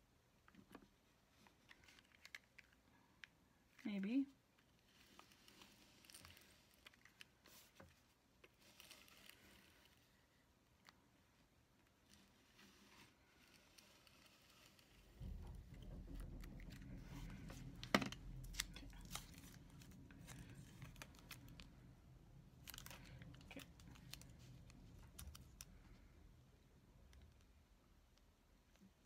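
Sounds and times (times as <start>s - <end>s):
paper crinkling and rustling: 4.7s - 10.3s, 16.3s - 21.8s, 22.6s - 26.1s
low rumble: 15.2s - 25.0s.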